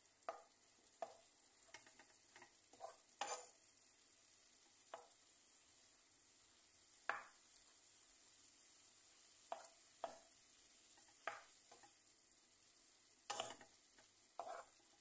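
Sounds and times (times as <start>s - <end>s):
faint sizzle: 0.0s - 15.0s
spatula scraping frying pan: 0.3s - 3.7s, 9.4s - 12.1s, 13.2s - 15.0s.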